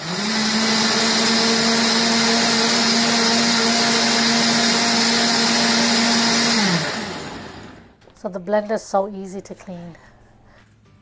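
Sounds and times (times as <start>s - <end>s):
blender motor running: 0.0s - 7.9s.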